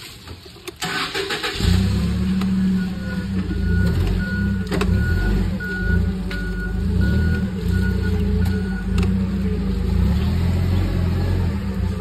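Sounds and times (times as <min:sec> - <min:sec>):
forklift engine running: 0:00.8 - 0:12.0
backup alarm beeping: 0:02.6 - 0:09.2.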